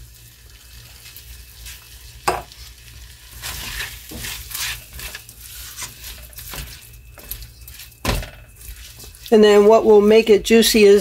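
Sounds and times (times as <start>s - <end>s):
food sizzling: 0.0s - 11.0s
spatula scraping a pot: 0.7s - 10.3s.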